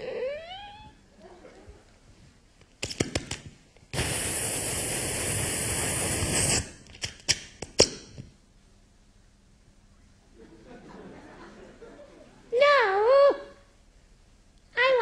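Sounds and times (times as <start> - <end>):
mouth clicks and pops: 2.7 - 8.4
mouth hissing rush: 3.9 - 6.9.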